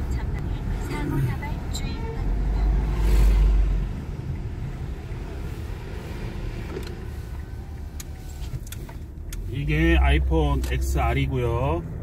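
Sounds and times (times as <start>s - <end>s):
car cabin rumble: 0.0s - 12.0s
faint clicks: 6.6s - 9.4s.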